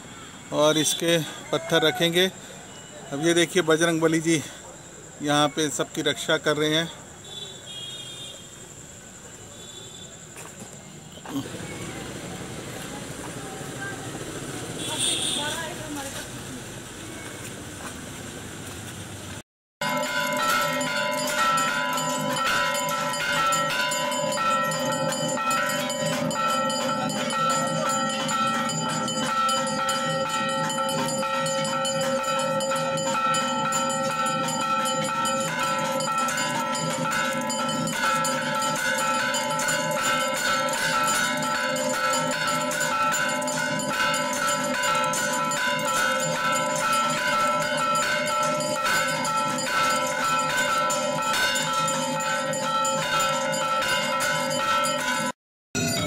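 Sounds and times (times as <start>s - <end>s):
bells ringing: 0.0s - 6.9s, 19.8s - 56.0s.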